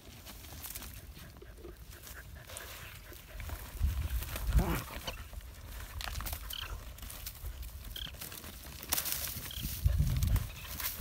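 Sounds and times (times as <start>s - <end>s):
dogs digging in dry dirt: 0.0s - 11.0s
dogs sniffing: 0.7s - 7.4s.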